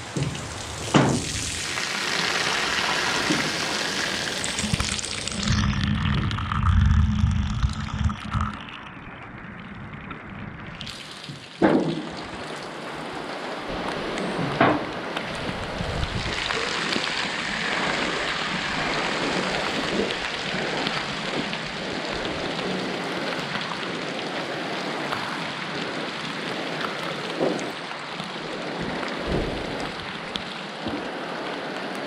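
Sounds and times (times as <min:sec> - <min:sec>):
heavy rain on a metal roof: 0:00.0 - 0:05.6, 0:10.6 - 0:32.0
water pouring off roof edge: 0:00.0 - 0:32.0
sharp knocks: 0:00.2 - 0:01.3.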